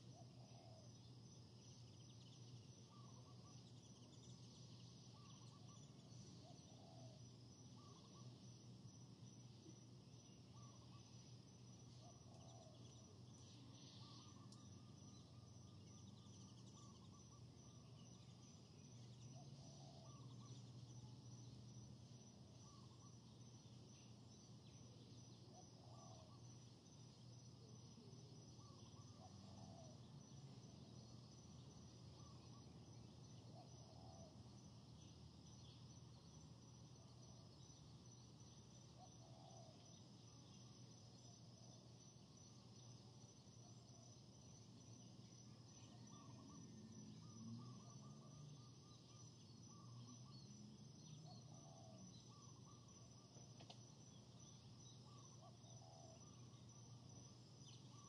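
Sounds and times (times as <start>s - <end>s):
insect chirring: 0.0s - 58.0s
distant bird calls: 2.1s - 8.4s, 11.9s - 21.0s.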